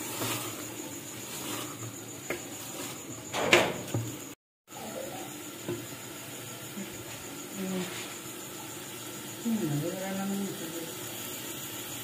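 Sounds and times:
wooden spoon scraping a pot: 0:00.0 - 0:04.3
food frying: 0:00.0 - 0:12.0.

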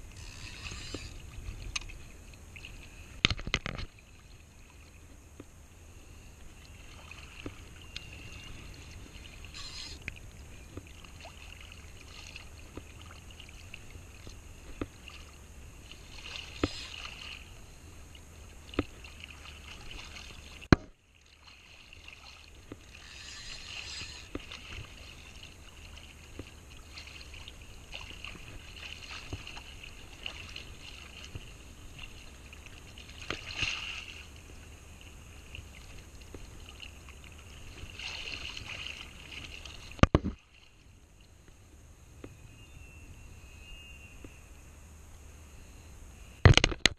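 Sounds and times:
fishing reel whirring and clicking: 0:00.0 - 0:01.9, 0:09.4 - 0:10.1, 0:16.4 - 0:17.5, 0:22.7 - 0:24.9
water sloshing around legs: 0:06.4 - 0:41.0.

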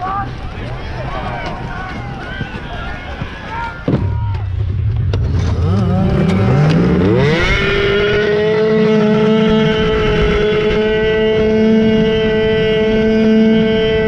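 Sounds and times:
snowmobile engine revving: 0:05.2 - 0:14.0.

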